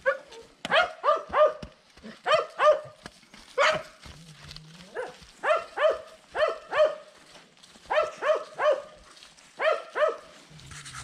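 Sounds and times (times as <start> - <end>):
dog barking: 0.0 - 3.0, 3.6 - 4.0, 4.9 - 7.1, 7.9 - 9.0, 9.6 - 10.4.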